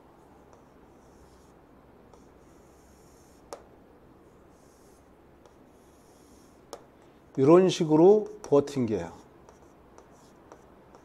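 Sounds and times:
chalk scratching on chalkboard: 0.4s - 3.7s, 4.4s - 7.6s, 8.2s - 11.0s
chalk tapping on chalkboard: 0.5s - 1.4s, 2.1s - 3.7s, 5.4s - 7.6s, 8.2s - 11.0s.

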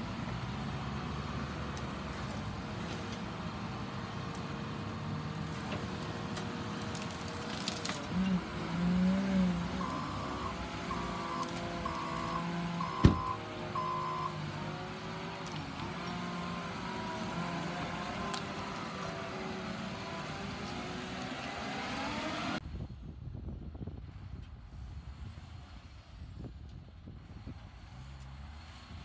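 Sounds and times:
diesel engine running: 0.0s - 22.3s
reversing alarm beeping: 9.7s - 14.4s.

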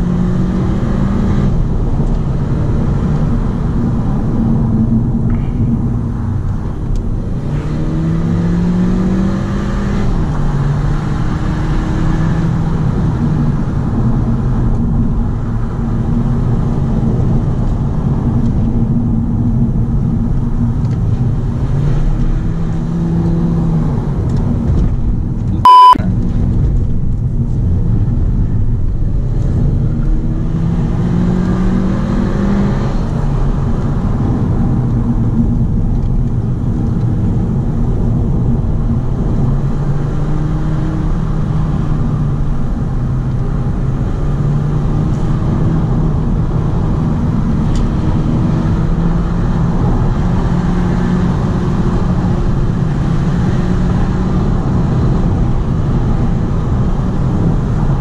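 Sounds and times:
car engine accelerating: 0.0s - 58.0s
loud beep: 25.6s - 26.0s.

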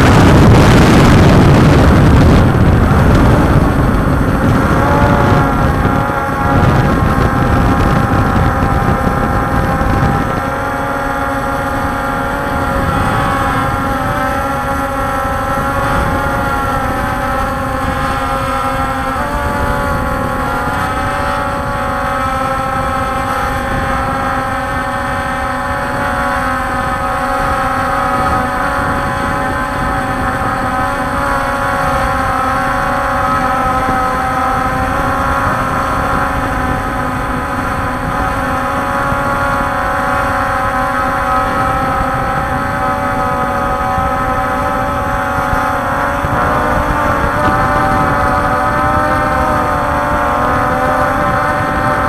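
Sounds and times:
heavy low rumble: 0.0s - 39.5s
quadcopter propellers droning: 0.0s - 52.0s.

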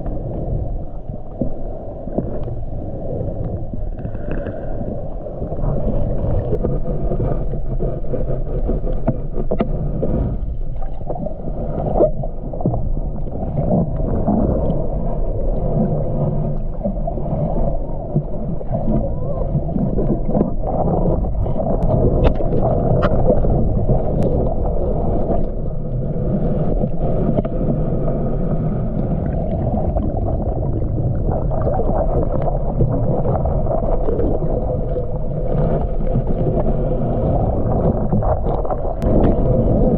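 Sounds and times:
underwater rush of water: 0.0s - 39.9s
underwater clicks and knocks: 8.4s - 11.2s, 18.1s - 25.6s, 37.3s - 39.9s.

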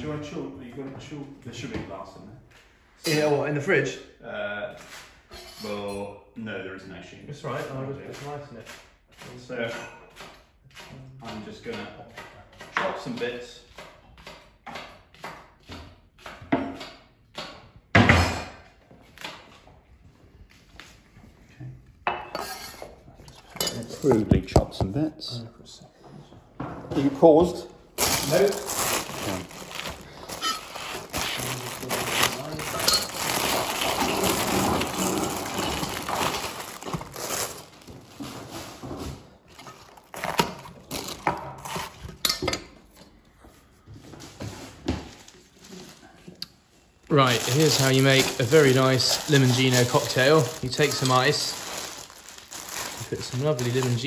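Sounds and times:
plastic bag crinkling: 28.0s - 38.8s, 47.0s - 54.0s
rustling: 28.0s - 40.4s, 47.1s - 54.0s.

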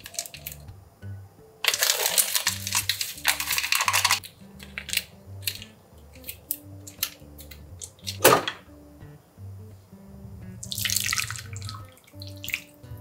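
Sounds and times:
plastic sachets crinkling: 0.0s - 0.6s, 1.6s - 7.2s
sachet tearing: 0.0s - 0.6s, 1.6s - 8.2s
soft background music: 0.0s - 13.0s.

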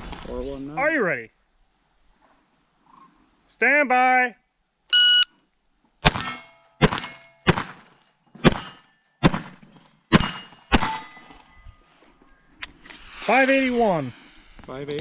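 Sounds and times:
pistol shots: 6.0s - 11.1s.

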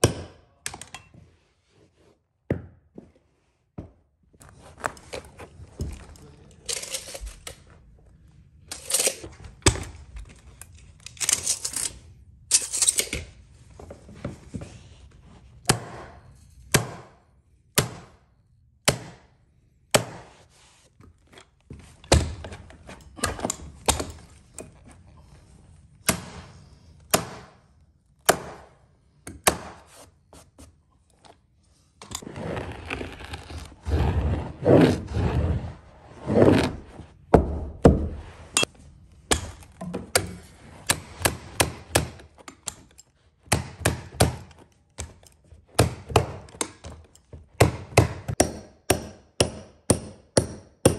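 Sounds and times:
carpet rustling: 1.2s - 15.6s, 29.8s - 43.5s.

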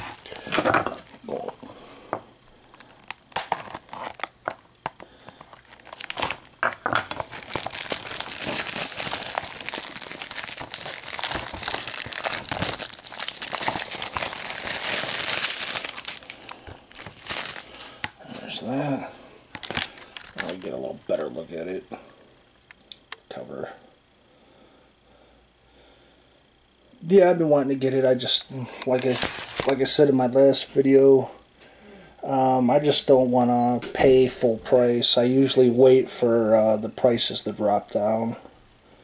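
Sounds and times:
plastic wrap crinkling: 0.0s - 1.7s, 2.5s - 18.8s, 19.5s - 21.3s, 28.9s - 30.0s.

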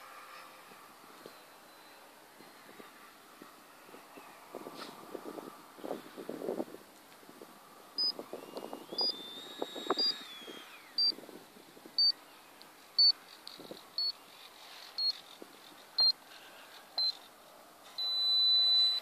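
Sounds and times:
electric ducted fan whine: 0.0s - 19.0s
short high electronic beeps: 18.0s - 19.0s.

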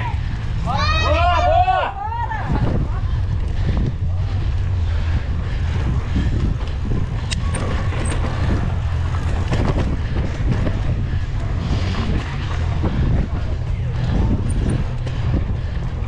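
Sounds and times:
wind buffeting microphone: 0.0s - 16.0s
bike tyres rolling over dirt: 2.4s - 16.0s
bike knocks and rattles: 5.7s - 16.0s.

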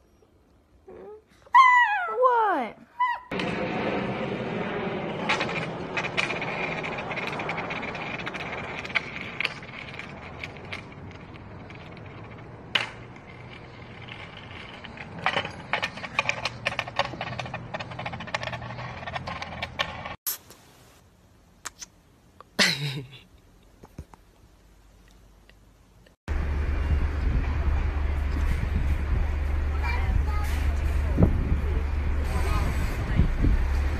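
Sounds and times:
skateboard wheels rolling on concrete: 3.3s - 20.2s, 26.3s - 33.9s.

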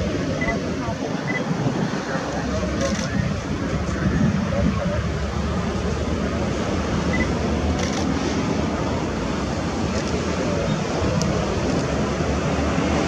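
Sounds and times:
jet engines rumbling at taxi: 0.0s - 13.0s.

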